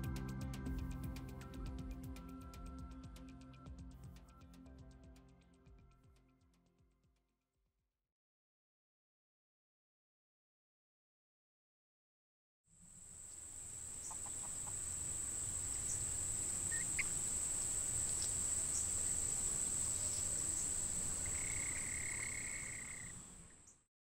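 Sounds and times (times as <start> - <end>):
insect drone: 12.8 - 23.8.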